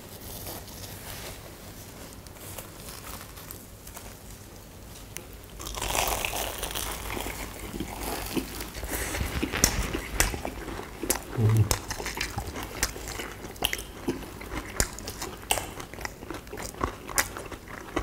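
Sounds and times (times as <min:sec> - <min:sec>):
people biting crisp fried dough: 0:05.5 - 0:18.0.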